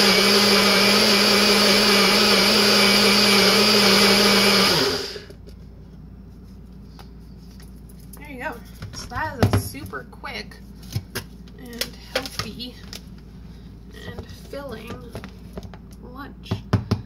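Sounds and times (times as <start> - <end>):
blender blending ice: 0.0 - 5.4.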